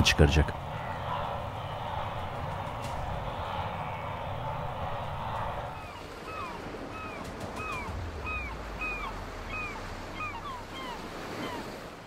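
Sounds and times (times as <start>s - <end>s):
rushing river water: 3.8s - 12.0s
bird whistled calls: 5.8s - 11.6s.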